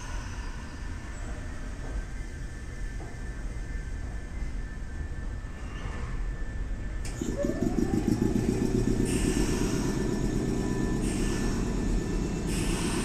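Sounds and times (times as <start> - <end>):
electric train motor whine: 0.0 - 13.0
wheels rumbling on rail: 0.0 - 13.0
high hiss: 9.0 - 13.0.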